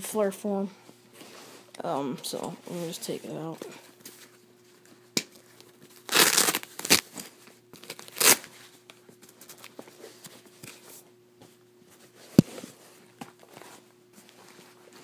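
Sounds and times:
velcro strap ripping: 6.0 - 7.1, 7.8 - 8.5.

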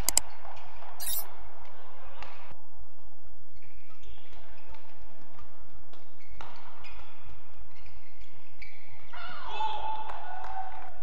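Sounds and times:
shoes squeaking: 0.0 - 0.2, 1.0 - 1.2.

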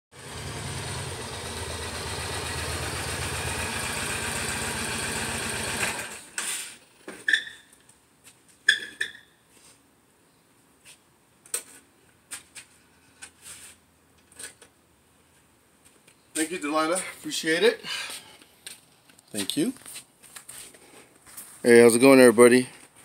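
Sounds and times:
motorcycle engine running: 0.1 - 6.3
brief squeaks: 6.4 - 7.8.

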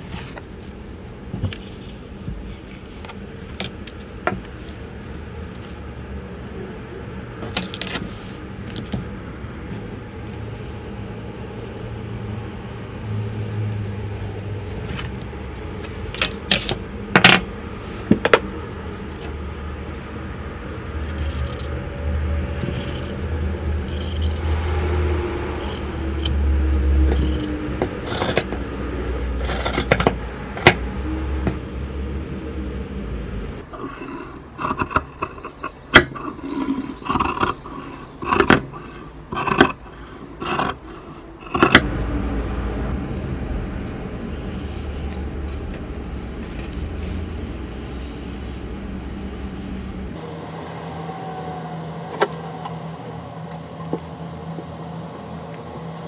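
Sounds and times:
low hum: 8.4 - 56.0.

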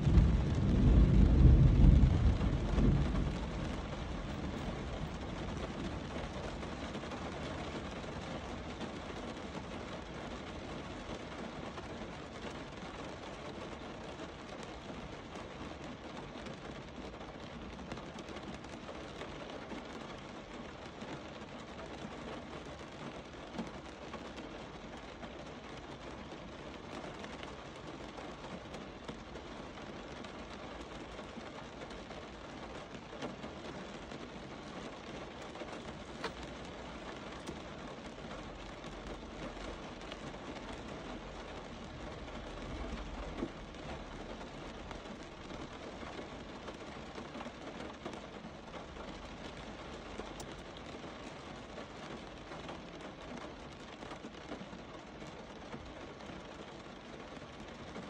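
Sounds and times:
distant thunder rumble: 0.0 - 6.7
steady rain falling: 0.0 - 58.0.

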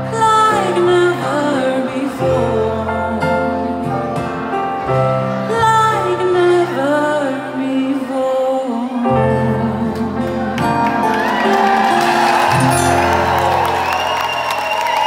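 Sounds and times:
woman singing into a microphone: 0.0 - 4.5, 5.3 - 10.8
band accompaniment: 9.9 - 15.0.

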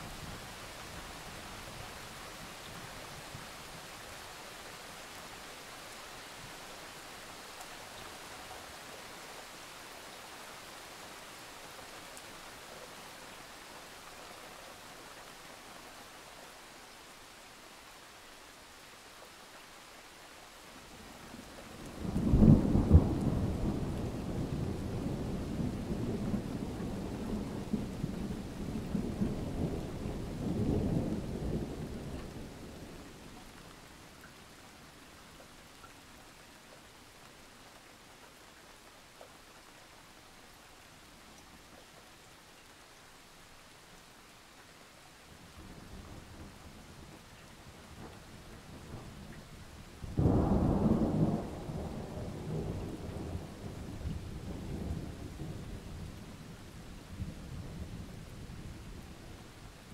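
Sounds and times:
rain hissing: 38.7 - 59.9
thunder rumbling: 50.1 - 55.8.

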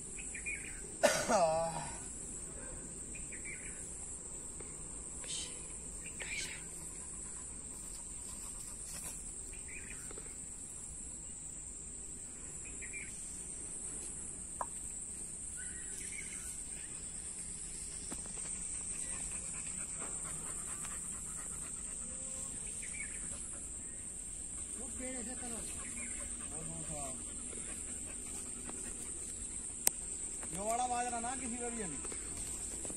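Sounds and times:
insects droning: 0.0 - 32.9.

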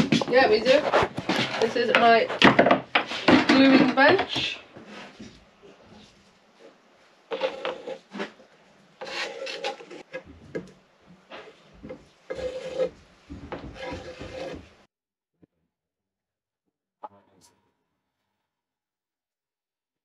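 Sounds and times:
wooden strips scraping: 0.0 - 10.6, 11.2 - 14.9.

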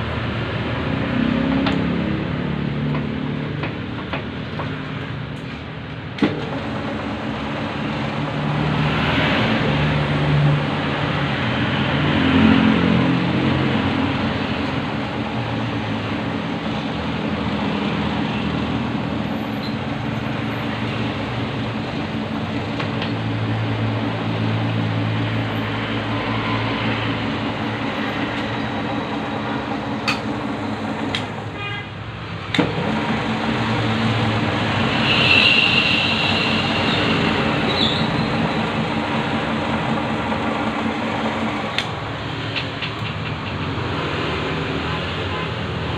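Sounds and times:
metal lathe running: 6.2 - 9.2, 13.2 - 31.5, 32.4 - 42.4.

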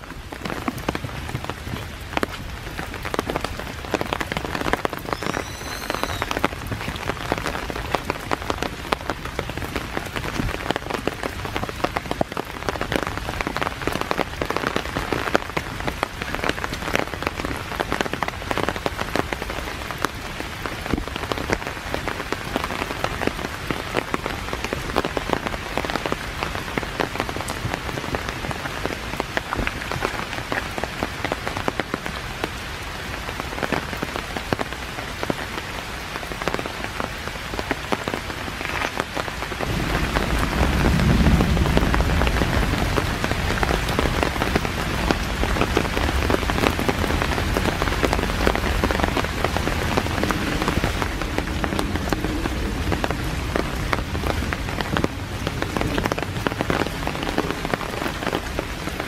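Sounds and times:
steady rain: 0.0 - 59.0.

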